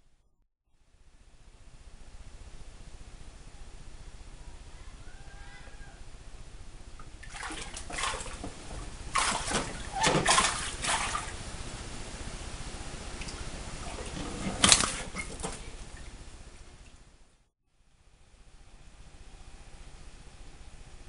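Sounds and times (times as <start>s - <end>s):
water splashing and sloshing: 7.0s - 12.4s, 13.0s - 17.2s.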